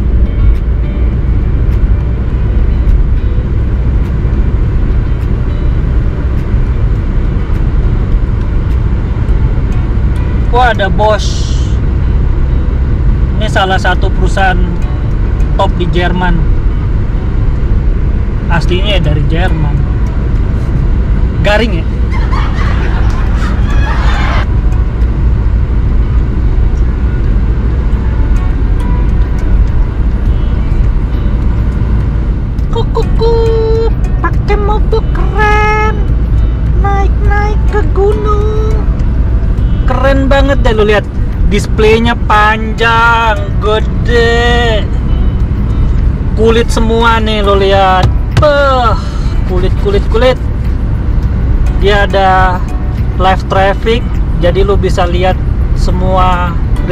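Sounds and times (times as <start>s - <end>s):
car cabin road noise: 0.0s - 56.9s
person speaking: 32.6s - 36.1s, 36.7s - 38.9s, 46.3s - 50.4s.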